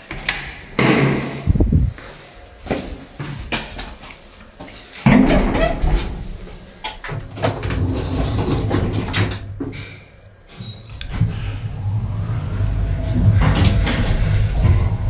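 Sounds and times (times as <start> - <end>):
elevator running hum: 5.2 - 15.0
elevator doors clattering shut: 11.0 - 15.0.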